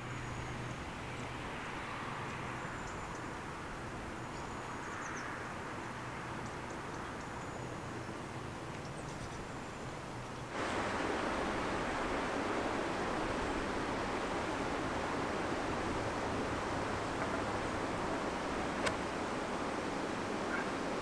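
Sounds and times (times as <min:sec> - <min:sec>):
steady background hiss: 0:00.0 - 0:21.0
small birds chirping: 0:14.0 - 0:21.0.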